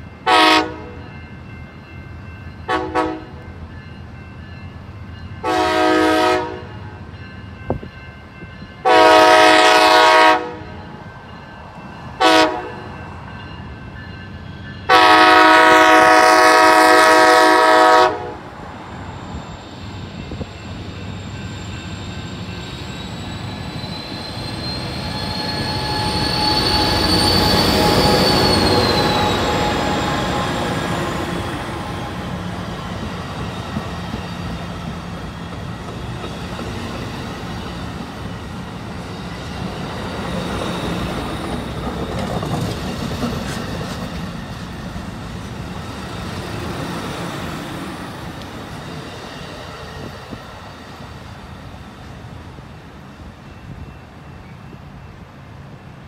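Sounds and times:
train rumble passing: 0:00.0 - 0:56.0
train horn blasts: 0:00.2 - 0:01.1, 0:02.7 - 0:03.4, 0:05.4 - 0:07.0, 0:08.8 - 0:10.9, 0:12.2 - 0:13.0, 0:14.9 - 0:18.6.

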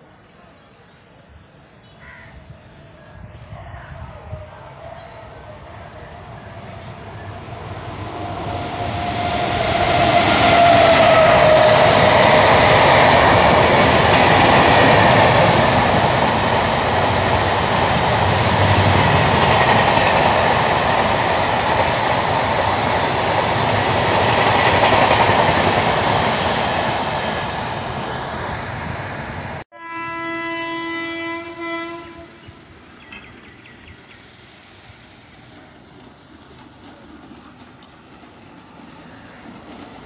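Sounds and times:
electric locomotive whine: 0:02.4 - 0:40.0
train wheels rumbling and clattering: 0:07.0 - 0:29.6.

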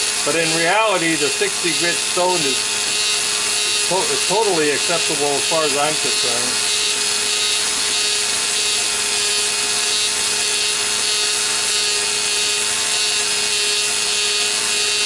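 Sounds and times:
grinder grinding metal: 0:00.0 - 0:15.0.

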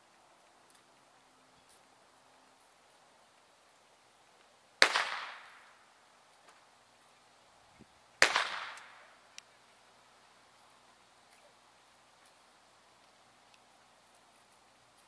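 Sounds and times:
pistol shots with echo: 0:04.8 - 0:05.7, 0:08.2 - 0:09.1.

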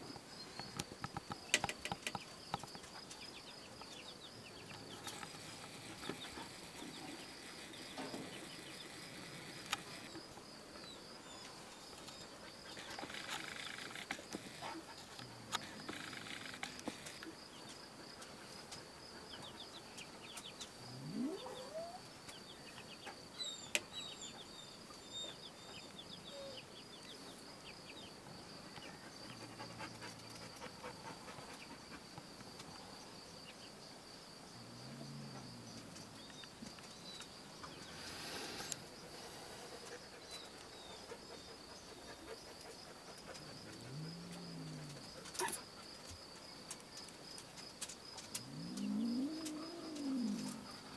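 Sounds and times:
faint chirps and ticks: 0:00.0 - 0:50.9
soft low animal calls: 0:20.8 - 0:22.1.

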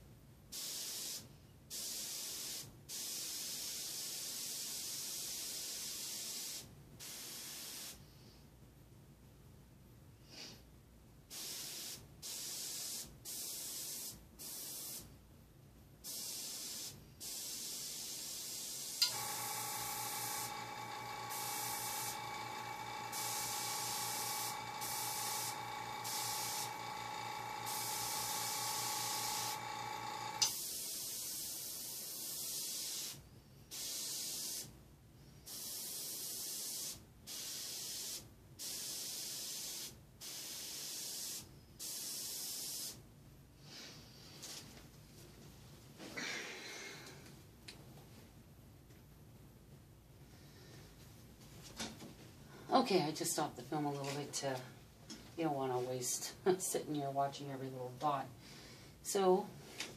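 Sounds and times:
airbrush hissing in bursts: 0:11.3 - 0:15.1, 0:16.0 - 0:34.7
air compressor motor humming: 0:19.0 - 0:30.5.

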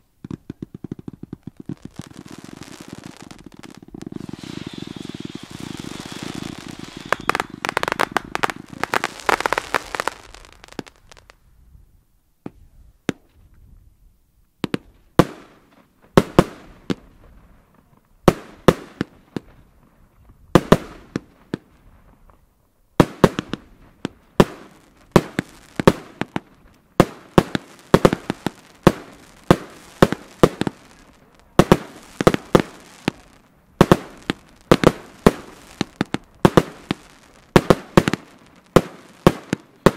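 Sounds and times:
fireworks crackling and banging: 0:00.0 - 0:11.4, 0:20.5 - 0:39.9.

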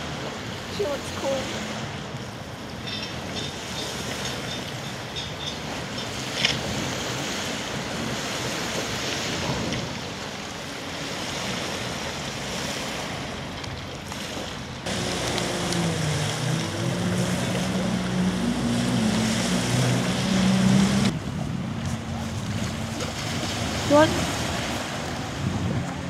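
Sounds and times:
small waves lapping at shore: 0:00.0 - 0:26.0
distant jet ski engine: 0:14.2 - 0:26.0
jet ski engine idling: 0:14.9 - 0:23.0
wind on microphone: 0:14.9 - 0:26.0.

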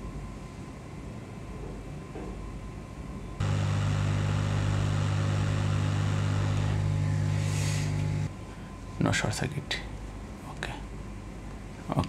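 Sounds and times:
hot air gun blowing: 0:03.4 - 0:08.3.

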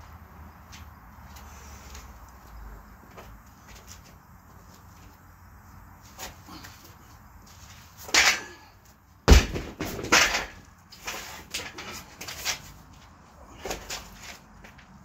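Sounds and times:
heavy stone thud on ground: 0:09.2 - 0:10.6.

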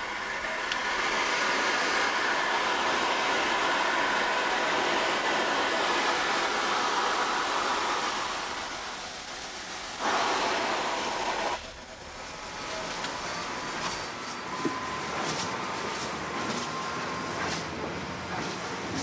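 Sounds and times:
loud burst of steam hissing: 0:00.0 - 0:14.1
steam locomotive hissing: 0:00.0 - 0:19.0.

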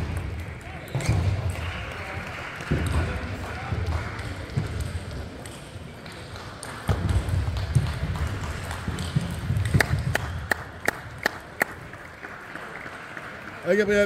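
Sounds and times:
ball bouncing: 0:02.6 - 0:10.8.

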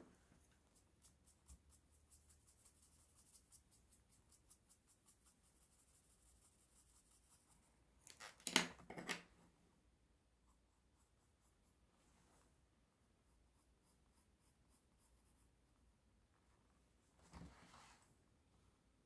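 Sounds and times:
drawing tool scratching: 0:00.0 - 0:09.3, 0:17.3 - 0:18.0
rustling and knocking: 0:08.0 - 0:09.4.

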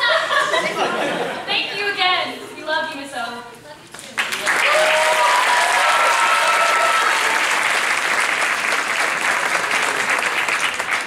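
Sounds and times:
audience applauding: 0:04.1 - 0:11.0
people cheering: 0:04.3 - 0:11.0.

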